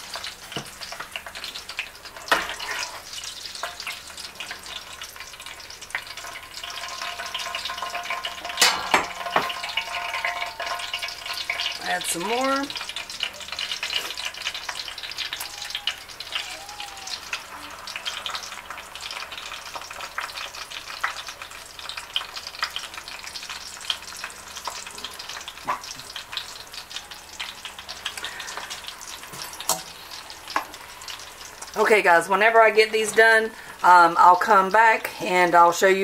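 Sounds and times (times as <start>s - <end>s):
food sizzling in hot oil: 0.0s - 36.0s.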